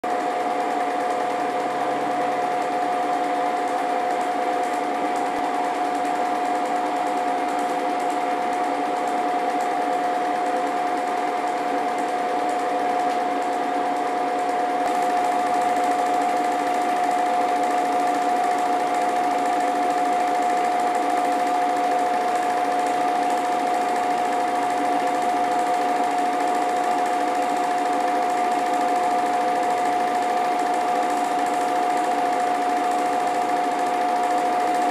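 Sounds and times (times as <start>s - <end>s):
film projector whirring: 0.0s - 34.9s.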